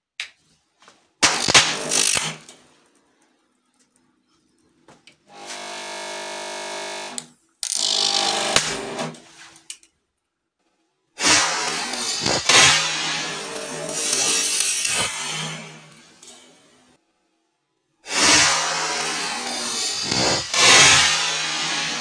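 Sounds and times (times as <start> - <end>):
sharp electrical crack: 1.2 - 2.5, 11.2 - 15.9, 18.1 - 22.0
steady electrical buzz: 5.3 - 7.2.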